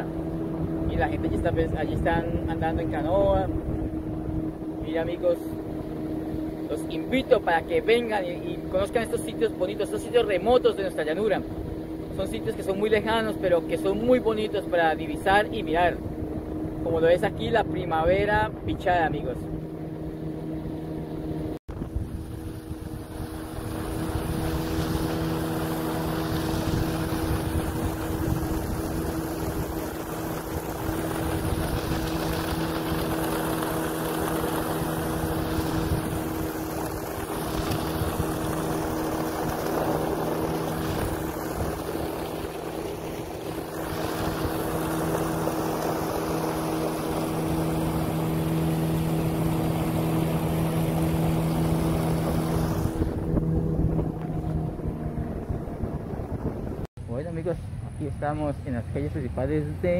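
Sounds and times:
wind rushing over microphone: 0:00.0 - 0:56.9
engine running: 0:00.0 - 0:59.9.

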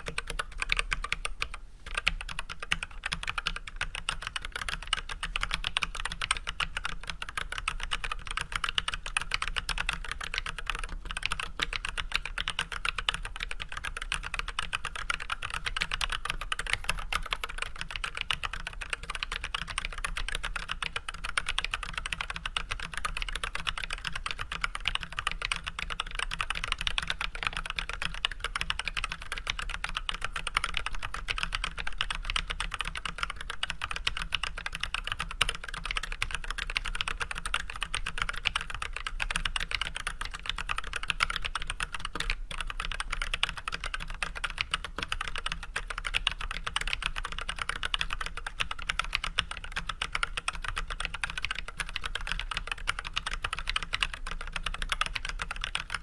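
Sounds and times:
mechanical keyboard typing: 0:00.0 - 0:56.0.

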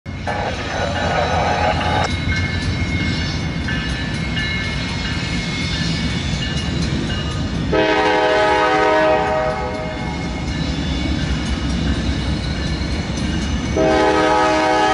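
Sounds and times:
grade crossing bell ringing: 0:00.1 - 0:07.8, 0:09.1 - 0:14.3
low rumble of locomotives: 0:00.1 - 0:14.9
diesel locomotive horn: 0:07.7 - 0:10.0, 0:13.8 - 0:14.9.

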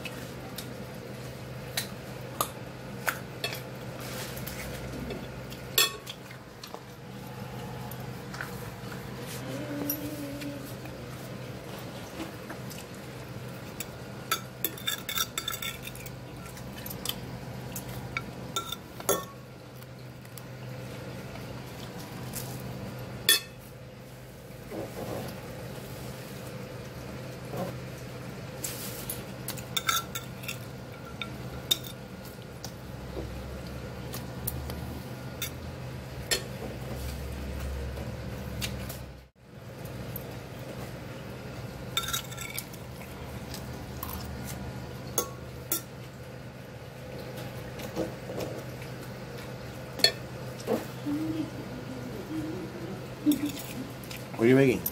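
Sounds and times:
steady low hum: 0:00.0 - 0:54.9.

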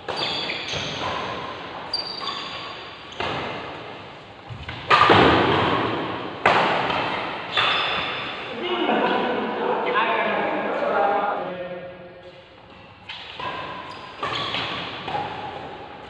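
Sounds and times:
rackets hitting shuttlecock: 0:00.0 - 0:08.5, 0:13.0 - 0:16.0.

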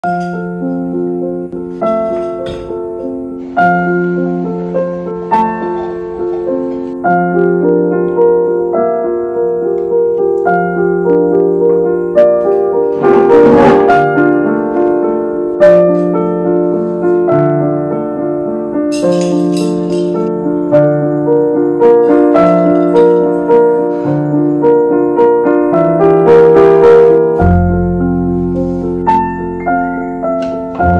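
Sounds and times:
soft slow piano chords: 0:00.0 - 0:30.9
deep bass note: 0:12.9 - 0:14.4.

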